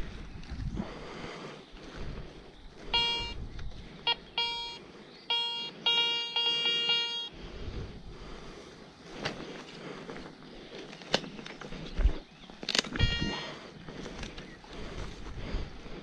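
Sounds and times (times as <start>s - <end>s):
metal detector beeping: 2.9s - 7.4s, 12.7s - 13.7s.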